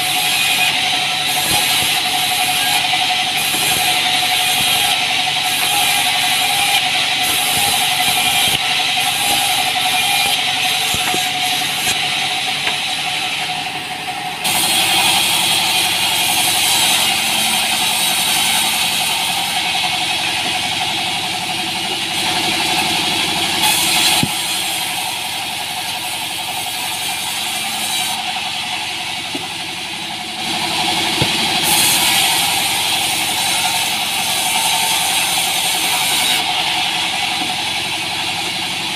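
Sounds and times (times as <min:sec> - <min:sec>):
saw blade hissing through log: 0:00.0 - 0:13.4, 0:14.4 - 0:19.8, 0:23.5 - 0:28.2, 0:31.2 - 0:37.4
sawmill engine droning: 0:00.0 - 0:38.9.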